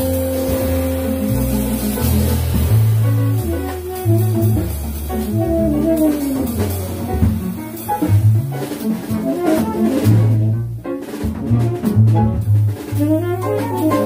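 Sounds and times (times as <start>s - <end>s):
tenor saxophone melody: 0.0s - 7.9s, 13.0s - 14.0s
drum kit with cymbals: 0.0s - 14.0s
piano: 0.0s - 14.0s
upright bass walking line: 0.0s - 14.0s.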